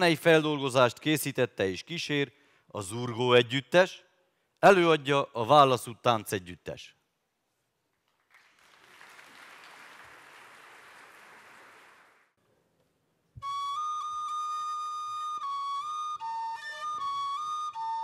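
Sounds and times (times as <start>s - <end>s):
audience applause: 8.2s - 12.3s
flute-like wind instrument: 13.4s - 18.0s.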